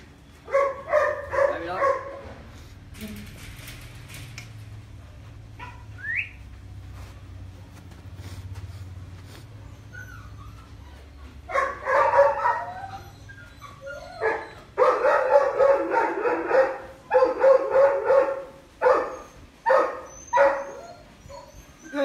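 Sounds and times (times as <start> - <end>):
dog barking: 0.5 - 2.3, 11.5 - 12.8, 14.2 - 20.8.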